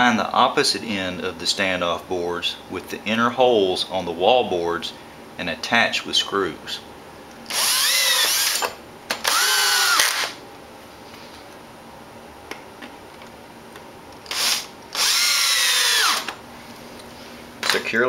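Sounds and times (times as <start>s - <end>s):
cordless drill driving screws: 7.5s - 10.4s, 14.2s - 16.4s.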